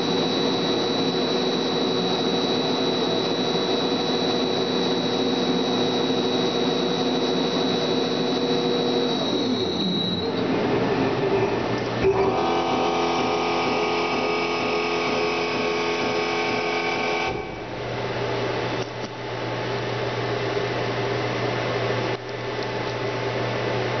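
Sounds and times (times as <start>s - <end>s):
welding machine hum: 11.8s - 19.2s.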